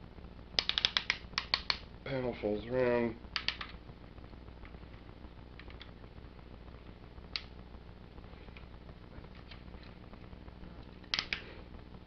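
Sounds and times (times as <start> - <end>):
faint low hum: 0.0 - 12.0
plastic toy clicks: 0.6 - 1.8.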